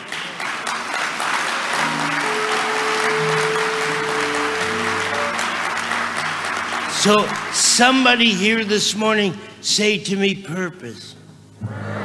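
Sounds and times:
large audience applauding: 0:00.0 - 0:09.0
sustained music chords: 0:01.7 - 0:08.2.

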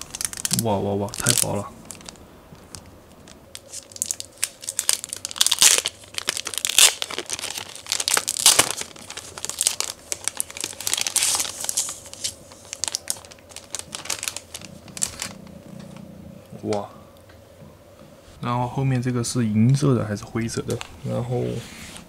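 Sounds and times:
plastic film crinkling and tearing: 0:00.0 - 0:15.4.

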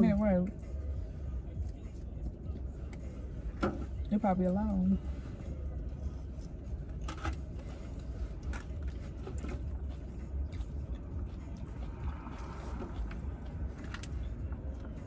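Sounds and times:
low rumble inside car: 0:00.0 - 0:15.0
chewing: 0:06.1 - 0:15.0.

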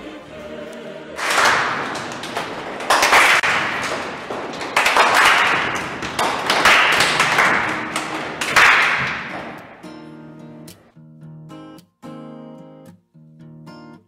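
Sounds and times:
light taps and claps: 0:01.2 - 0:10.0.

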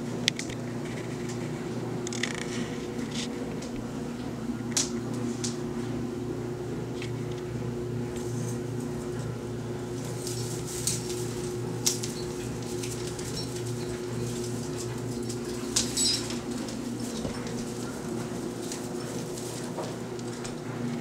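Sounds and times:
steady low hum: 0:00.0 - 0:21.0
kitten rustling tree branches: 0:09.9 - 0:20.5.

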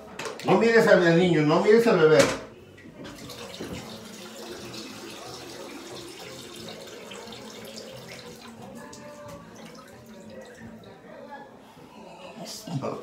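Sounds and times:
water running steadily: 0:03.0 - 0:11.1.

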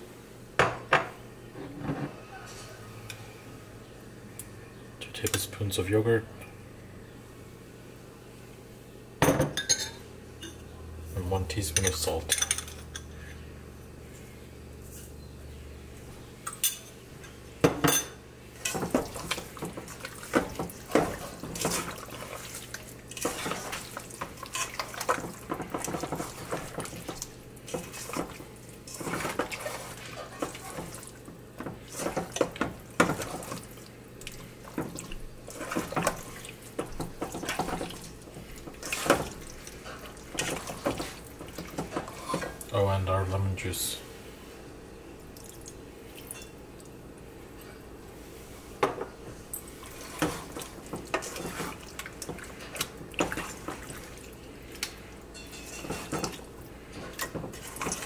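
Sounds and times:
wet mixing sounds: 0:18.4 - 0:42.9, 0:49.6 - 0:58.0
spoon clinking in bowl: 0:55.4 - 0:56.0.

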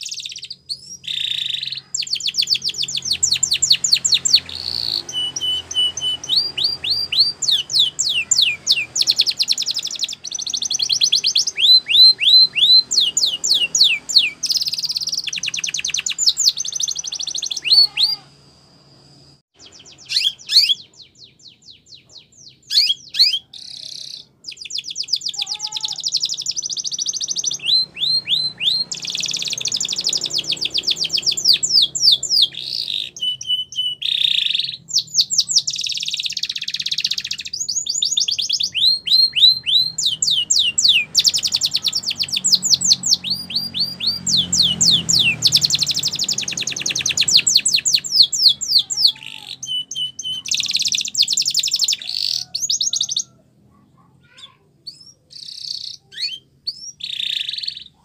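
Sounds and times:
canary singing trills: 0:00.0 - 0:58.0.

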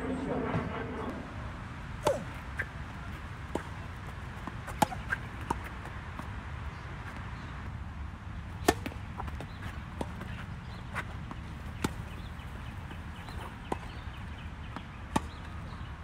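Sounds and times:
tennis ball bouncing on court: 0:02.0 - 0:06.3, 0:08.6 - 0:15.6
tennis ball hit by racquets: 0:02.0 - 0:06.3, 0:08.5 - 0:15.5.

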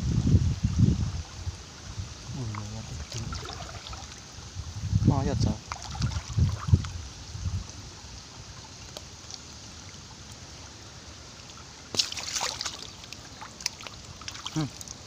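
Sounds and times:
stream water trickling: 0:00.0 - 0:15.0
water splash: 0:02.5 - 0:04.3, 0:05.6 - 0:06.9, 0:11.4 - 0:15.0.

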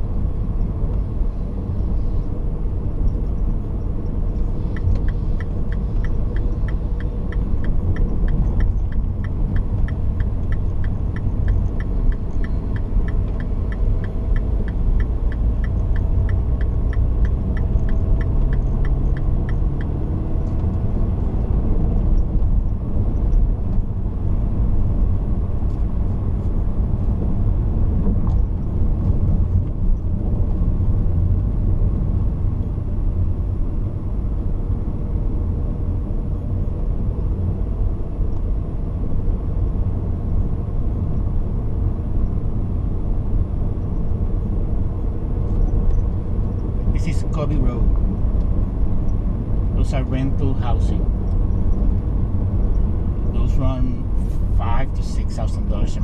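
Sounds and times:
car driving rumble: 0:00.0 - 0:56.0
faint regular ticking: 0:03.2 - 0:20.0.

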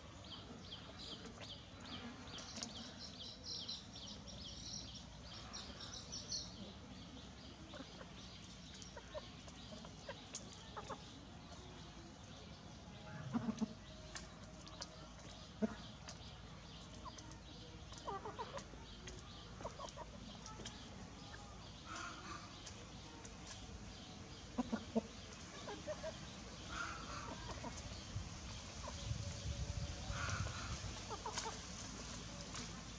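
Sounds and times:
chickens clucking: 0:07.5 - 0:12.5, 0:13.2 - 0:32.9.

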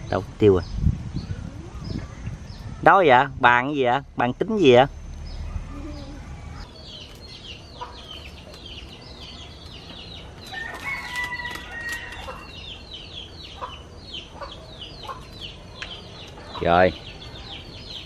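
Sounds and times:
chickens chirping: 0:05.2 - 0:18.0.

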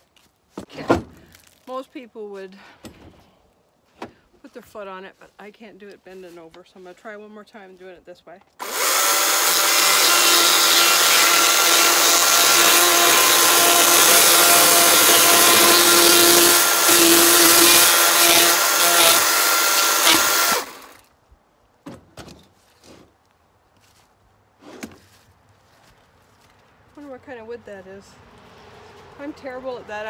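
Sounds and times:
electric chainsaw cutting wood: 0:08.6 - 0:21.0.

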